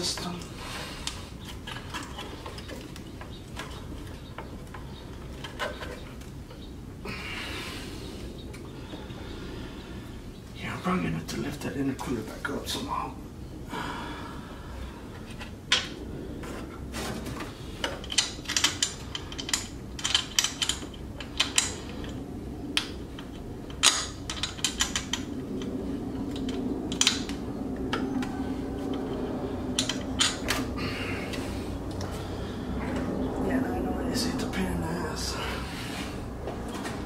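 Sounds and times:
metal tools clicking and clanking: 0:17.8 - 0:22.2, 0:23.1 - 0:28.1, 0:28.8 - 0:30.6.

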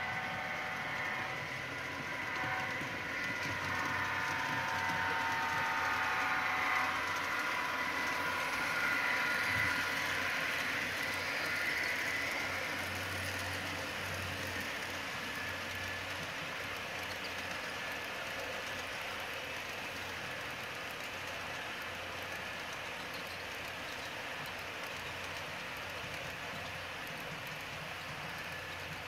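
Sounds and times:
model train horn chord: 0:00.0 - 0:08.6
model train rolling on track: 0:00.0 - 0:29.0.

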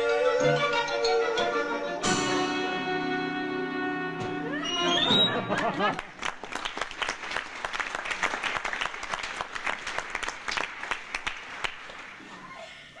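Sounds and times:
audience applauding: 0:04.9 - 0:12.3.

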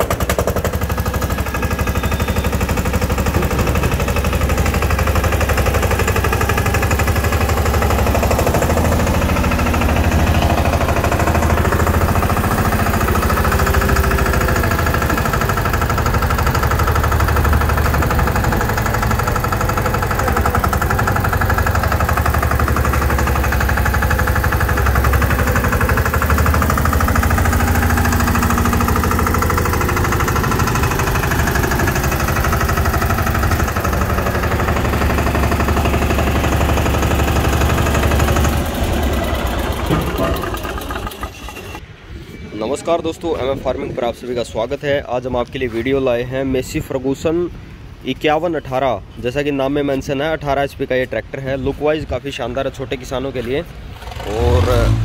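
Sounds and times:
tractor diesel engine knocking: 0:00.0 - 0:41.8.

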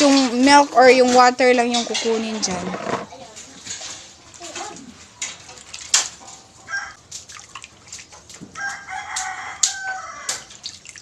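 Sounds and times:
hands squelching coconut in water: 0:05.2 - 0:11.0
rooster crowing: 0:06.6 - 0:07.0, 0:08.5 - 0:10.5.

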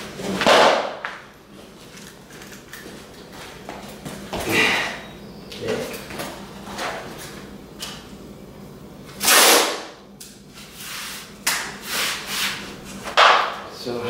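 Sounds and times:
masking tape ripping off roll: 0:09.2 - 0:09.9.

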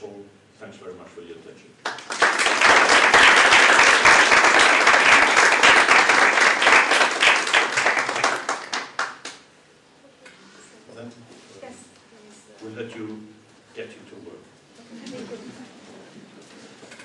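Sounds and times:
audience applauding: 0:01.8 - 0:09.4.

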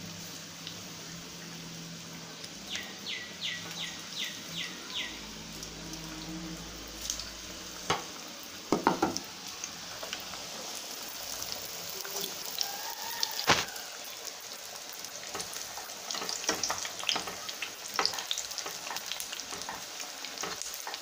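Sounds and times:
food deep-frying in oil: 0:00.0 - 0:21.0.

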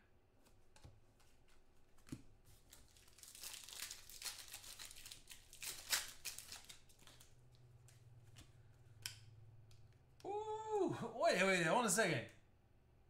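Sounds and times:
cards being handled: 0:00.4 - 0:08.6
foil pack crackling: 0:02.5 - 0:07.6.

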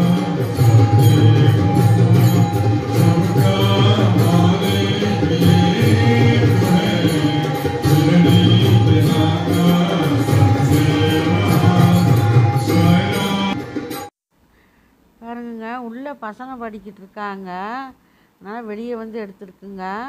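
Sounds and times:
devotional chanting: 0:00.0 - 0:13.9
jingling metal percussion: 0:00.0 - 0:14.1.

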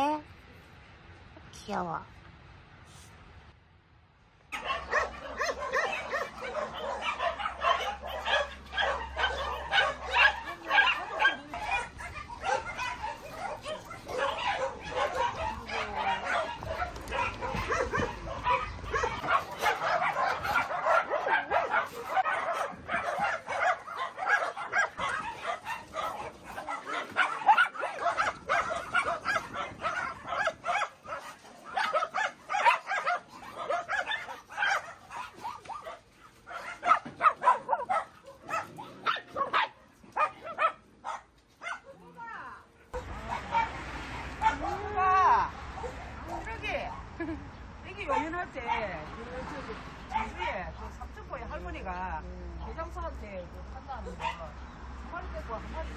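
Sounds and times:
dogs barking and yipping: 0:04.5 - 0:47.2, 0:47.9 - 0:49.0, 0:50.0 - 0:51.6, 0:54.0 - 0:54.7.

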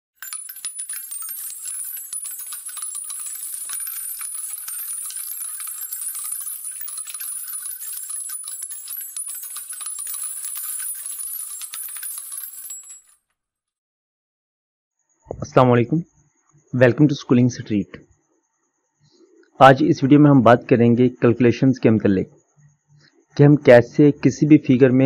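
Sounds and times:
glittering rattle of tiny clicks: 0:00.1 - 0:13.2.

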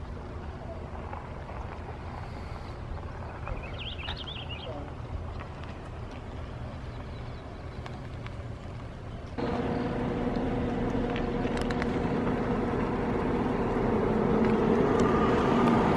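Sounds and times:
low outdoor rumble: 0:00.0 - 0:15.9
engine running steadily: 0:07.6 - 0:15.9.

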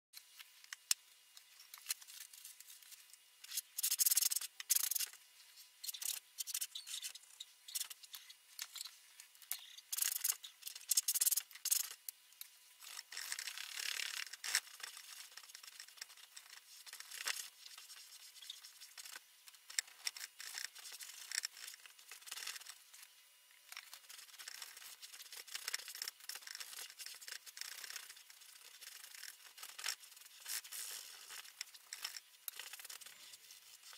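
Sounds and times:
paintbrush scrubbing on canvas: 0:16.6 - 0:19.2.

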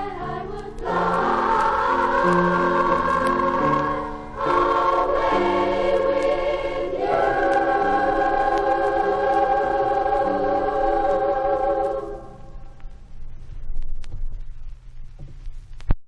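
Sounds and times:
choir singing: 0:00.0 - 0:12.7
piano: 0:00.0 - 0:13.0.

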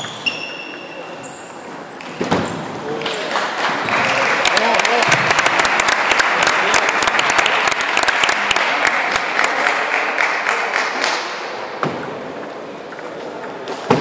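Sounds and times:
spectators applauding: 0:03.0 - 0:11.3.

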